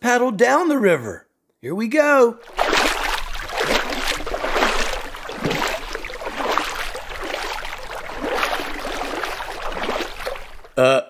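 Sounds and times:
paddle strokes splashing water: 0:02.4 - 0:10.8.

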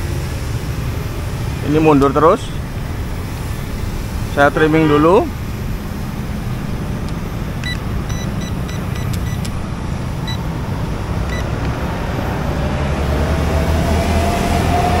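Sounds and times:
road traffic rumble: 0:00.0 - 0:15.0
short electronic beeps: 0:07.6 - 0:09.5, 0:10.2 - 0:10.4.

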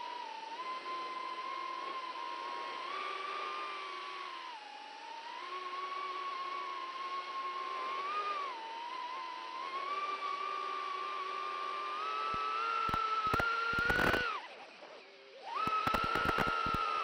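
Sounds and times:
drone motors whining: 0:00.0 - 0:17.0
sharp crackling clicks: 0:12.8 - 0:14.3, 0:15.7 - 0:16.9.

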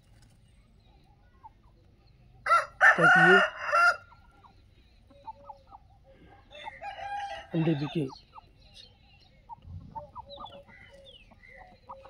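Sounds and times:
faint chicken clucks: 0:00.3 - 0:12.0
rooster crowing: 0:02.5 - 0:04.1, 0:06.5 - 0:08.0.

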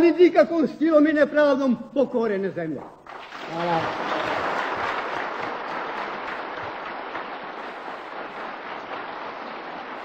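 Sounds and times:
crowd applauding: 0:03.0 - 0:10.0.

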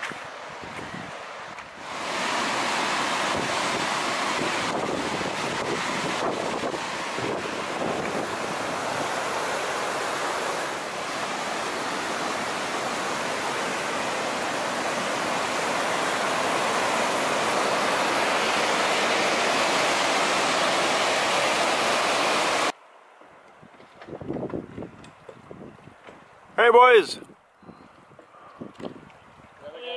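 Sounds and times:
whitewater rushing over rocks: 0:00.1 - 0:22.8.

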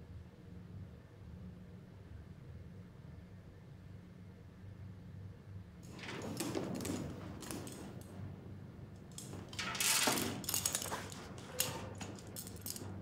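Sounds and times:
handcuff chain clinking: 0:09.1 - 0:13.0.

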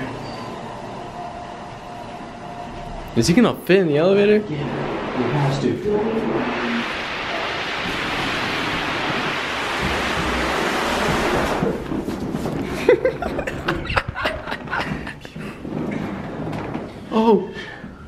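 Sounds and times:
air mattress scraping over carpet: 0:03.3 - 0:17.1.

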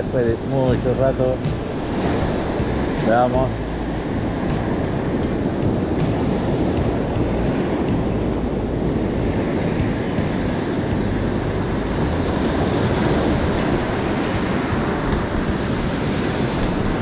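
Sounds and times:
surf breaking on rocky shore: 0:00.0 - 0:17.0
wind buffeting microphone: 0:00.0 - 0:17.0.

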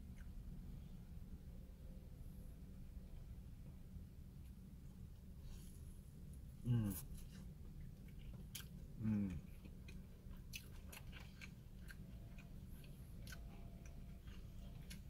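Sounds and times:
steady low hum: 0:00.0 - 0:15.0
person humming mm: 0:06.6 - 0:07.1, 0:09.0 - 0:09.4
person chewing crunchy food: 0:07.0 - 0:15.0.

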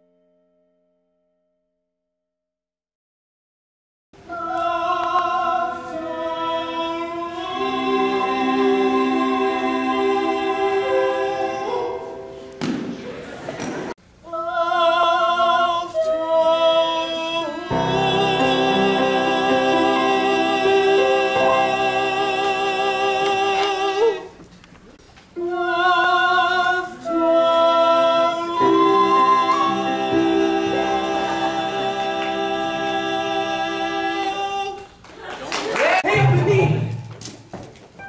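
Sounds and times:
man singing: 0:04.2 - 0:12.2, 0:14.2 - 0:24.4, 0:25.4 - 0:34.9.

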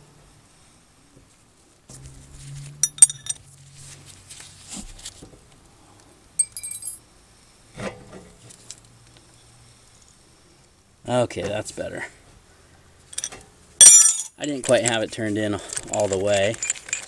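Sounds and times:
metal tools clinking: 0:02.8 - 0:03.4, 0:06.4 - 0:07.0, 0:13.1 - 0:15.0, 0:15.6 - 0:17.0.

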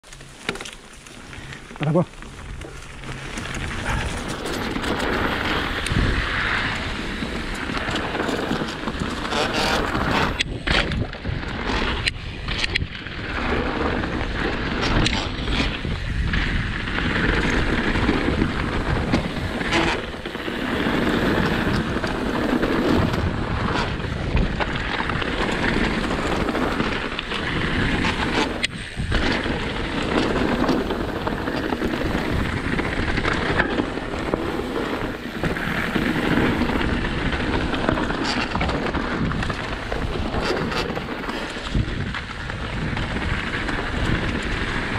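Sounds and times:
bike tyres on dirt: 0:00.0 - 0:44.9
wind buffeting microphone: 0:01.4 - 0:44.9.

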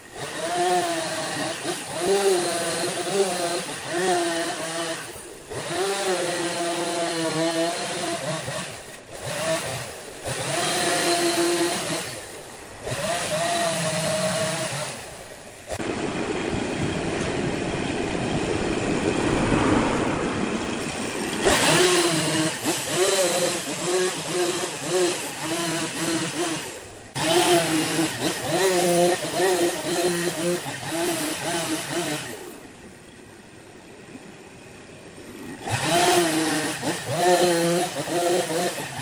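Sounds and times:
chainsaw cutting wood: 0:00.0 - 0:16.0, 0:21.2 - 0:32.6, 0:35.3 - 0:39.0.

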